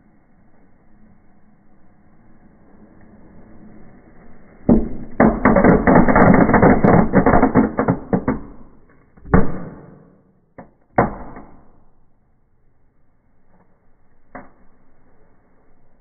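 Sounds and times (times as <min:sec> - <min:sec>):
fireworks crackling pops: 0:04.7 - 0:11.7.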